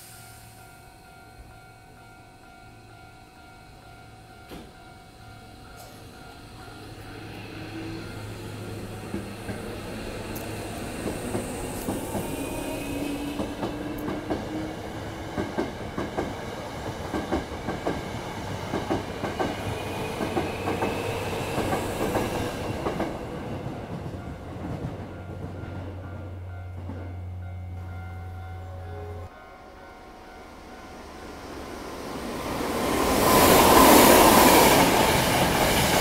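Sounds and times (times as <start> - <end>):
train wheels clacking over rail joints: 15.3 - 25.6.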